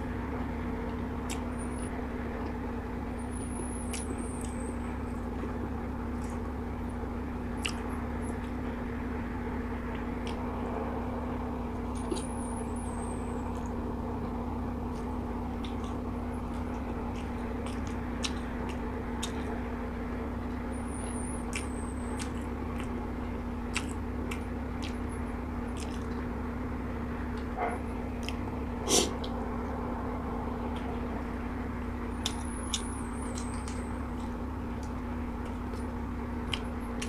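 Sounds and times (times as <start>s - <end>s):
steady low hum: 0.0s - 37.0s
small clicks and smacks: 9.8s - 10.4s, 14.9s - 19.6s, 23.6s - 26.3s, 32.2s - 37.0s
person chewing noodles: 14.9s - 19.6s, 23.7s - 25.0s, 25.7s - 26.2s.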